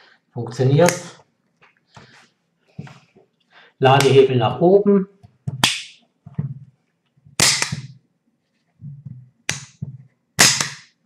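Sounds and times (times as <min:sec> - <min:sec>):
revolver hammer snapping: 0:07.4 - 0:07.9, 0:10.4 - 0:10.9.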